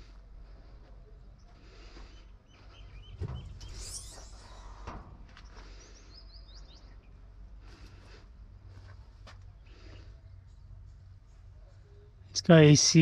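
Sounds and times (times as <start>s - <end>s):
low background rumble: 0.0s - 13.0s
small birds chirping: 1.1s - 8.1s, 8.7s - 12.3s
thump: 3.1s - 5.3s.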